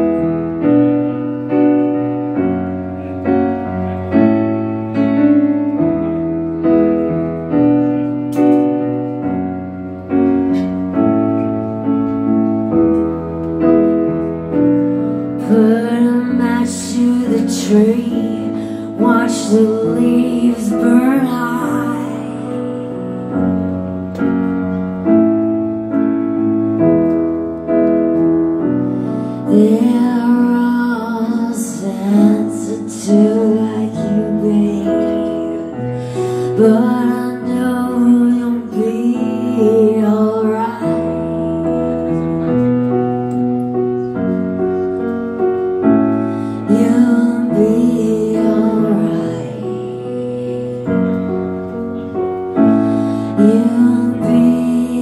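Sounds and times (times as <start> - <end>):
sustained keyboard chords: 0.0 - 55.0
woman singing: 15.4 - 23.2, 29.4 - 42.4, 46.5 - 51.2, 53.1 - 55.0.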